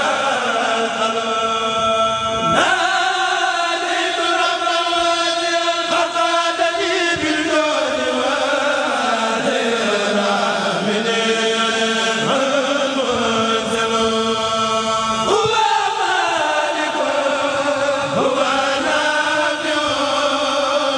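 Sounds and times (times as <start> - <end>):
men chanting in unison: 0.0 - 20.9.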